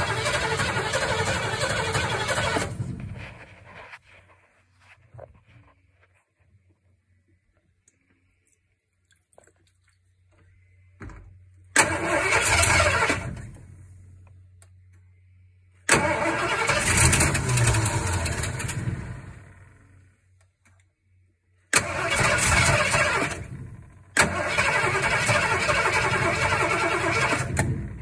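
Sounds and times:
engine cranking by starter: 0.0s - 3.9s, 11.7s - 13.9s, 15.8s - 20.0s, 21.7s - 28.0s.

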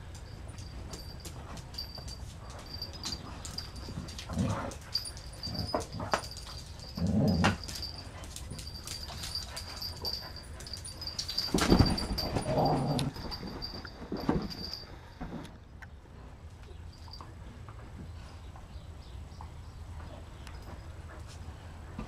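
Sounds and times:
dogs scuffling: 0.0s - 14.8s
paws clicking on floor: 0.0s - 15.4s
dogs growling and grunting: 2.6s - 13.8s.

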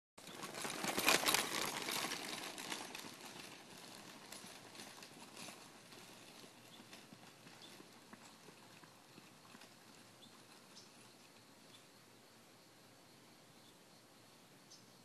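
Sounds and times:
footsteps crunching on gravel: 0.2s - 10.4s
small cart wheels on gravel: 0.2s - 11.9s.

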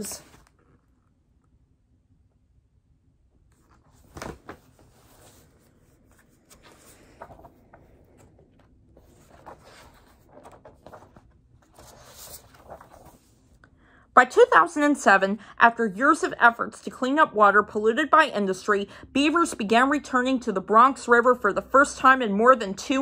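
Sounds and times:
book pages rustling: 0.1s - 0.7s, 3.5s - 13.6s.

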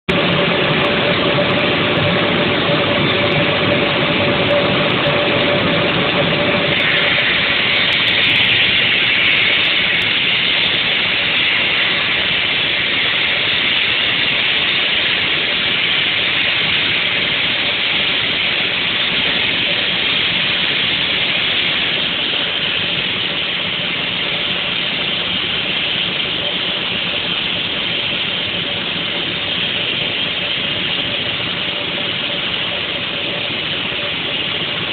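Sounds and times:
electric motor hum: 0.1s - 34.9s
circular saw grinding stone: 2.2s - 27.4s.

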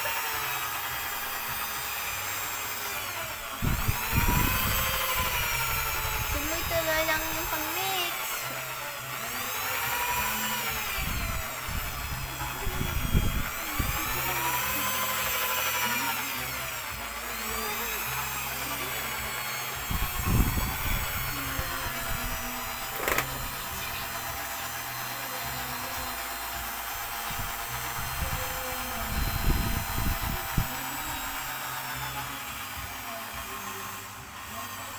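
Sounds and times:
electric drill motor whine: 0.0s - 34.9s.

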